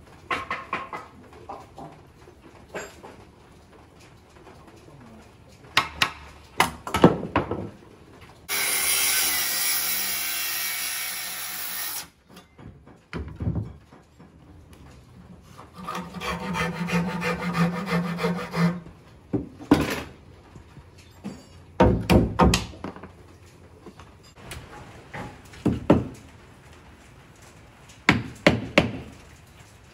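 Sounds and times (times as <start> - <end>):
saw cutting wood: 8.5 - 12.1, 15.6 - 18.9.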